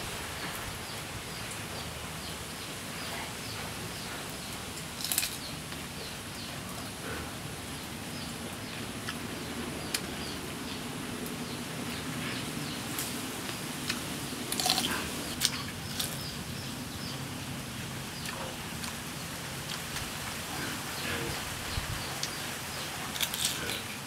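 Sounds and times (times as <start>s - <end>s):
steady low noise: 0.0s - 24.0s
clicks and crunches of eating: 4.8s - 5.8s, 13.0s - 16.3s, 23.0s - 24.0s.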